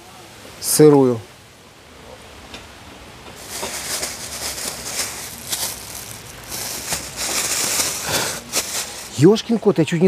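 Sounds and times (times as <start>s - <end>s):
meat sizzling over charcoal: 3.4s - 9.2s.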